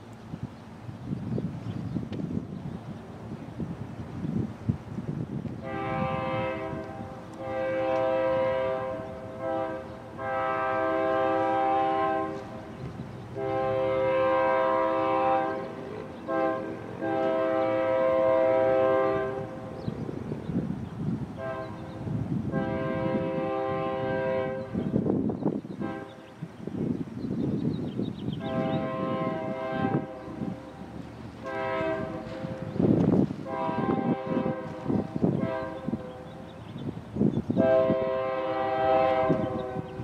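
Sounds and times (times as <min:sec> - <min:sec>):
low rumble of train: 0:00.0 - 0:40.0
train air horn blasts: 0:05.6 - 0:12.7, 0:13.4 - 0:19.8, 0:21.3 - 0:24.9, 0:25.8 - 0:26.2, 0:28.4 - 0:36.4, 0:37.6 - 0:40.0.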